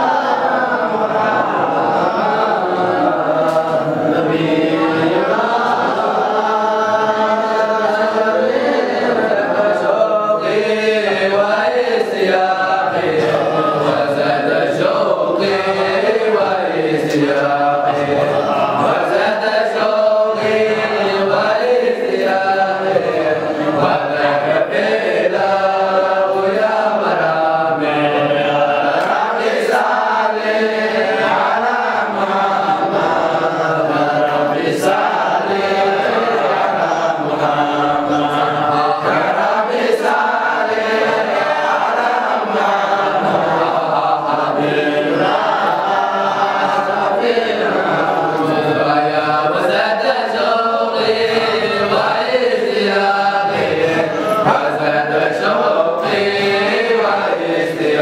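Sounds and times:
men chanting together: 0.0 - 58.0.

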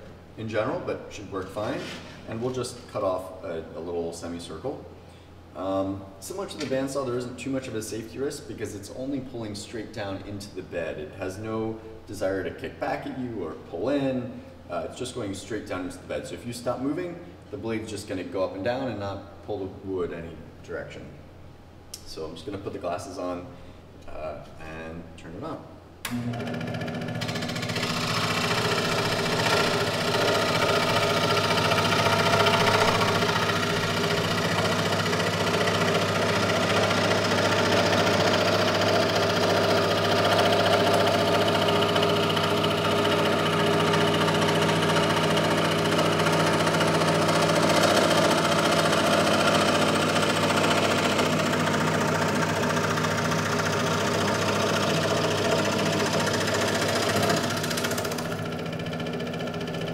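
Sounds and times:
scroll saw cutting wood: 1.6 - 2.4, 26.8 - 59.9.

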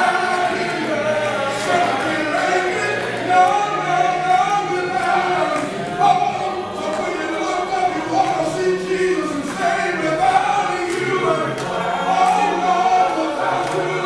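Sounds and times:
men singing gospel song: 0.0 - 14.0.

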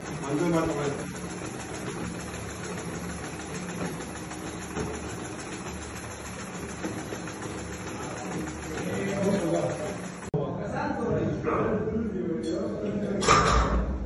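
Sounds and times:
exercise bike flywheel whirring: 0.0 - 10.3.

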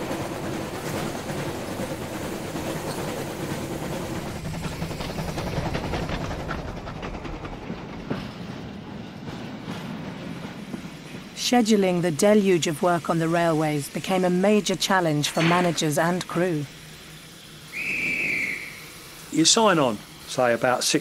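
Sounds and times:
wheels clattering on rails: 0.0 - 16.7
steam train rumble: 0.0 - 21.0.

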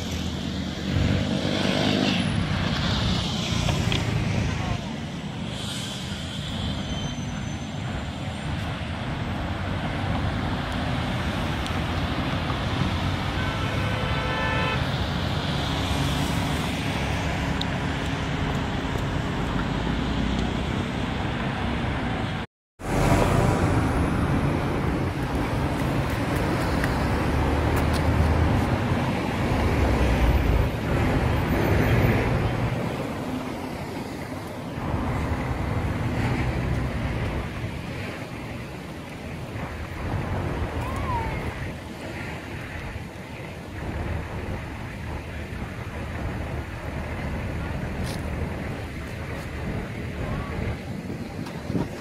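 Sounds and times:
road traffic passing: 0.0 - 52.0
car horn toot: 13.4 - 14.9.

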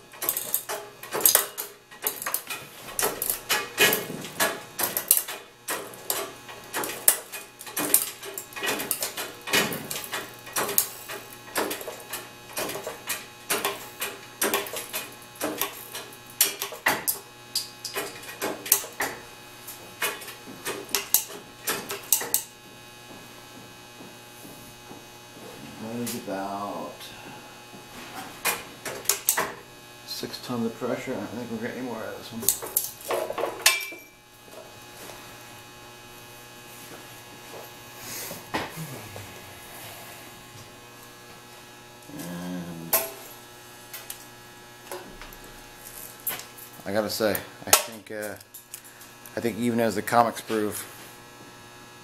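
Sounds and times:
steady low hum: 0.0 - 52.0
hydraulic press clicking and clacking: 0.1 - 19.3, 19.9 - 22.5, 28.4 - 29.6.

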